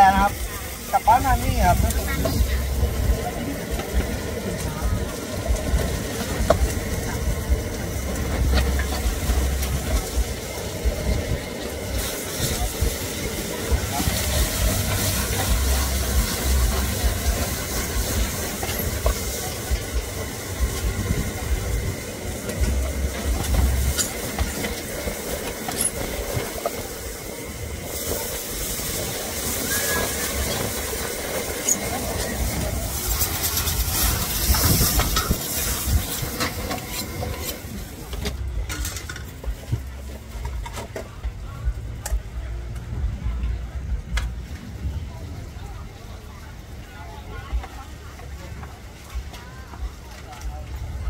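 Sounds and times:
steak hissing and sizzling: 0.0 - 38.2
low rumble: 0.0 - 46.9
flames flaring around a wok: 0.0 - 51.0.

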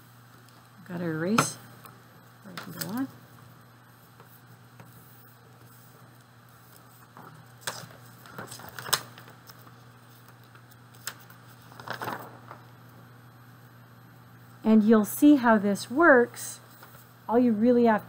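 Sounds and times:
low steady hum: 0.0 - 18.0
papers shifted and tapped: 6.7 - 12.6.

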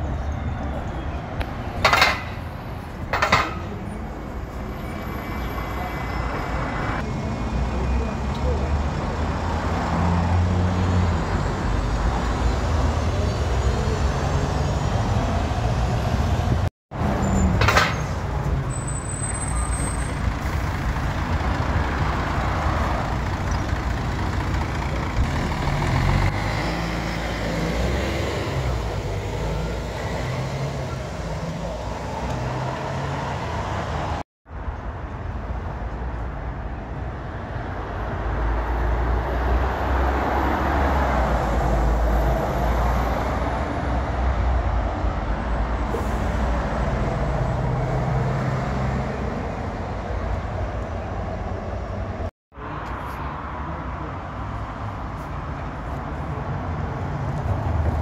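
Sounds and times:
bus engines idling and pulling away: 0.0 - 58.0.

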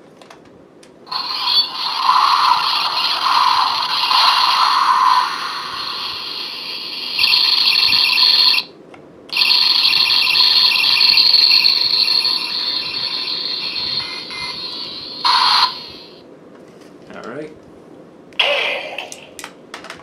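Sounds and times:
toy belt electronic sound effects: 1.1 - 8.7, 9.3 - 16.2.

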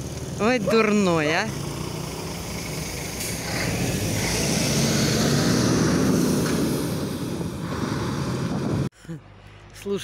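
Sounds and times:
vehicle engine running: 0.0 - 4.8
road noise: 0.0 - 10.0.

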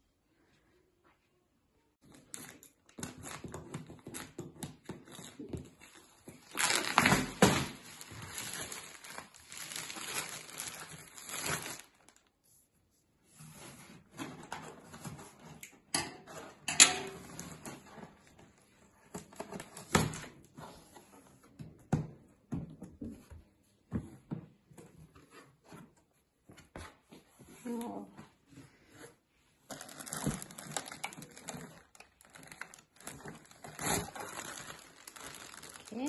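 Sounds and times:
plastic wrap crinkling: 5.1 - 12.3, 29.7 - 36.0.

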